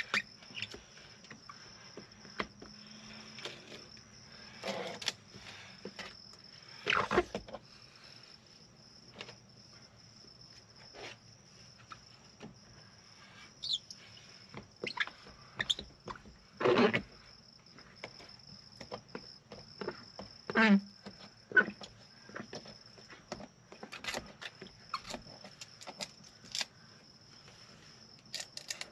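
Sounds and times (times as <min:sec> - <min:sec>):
squeegee scraping and squeaking glass: 0:00.0 - 0:01.7, 0:03.0 - 0:06.1, 0:06.7 - 0:07.5, 0:13.2 - 0:17.2, 0:20.5 - 0:20.8, 0:23.8 - 0:26.6.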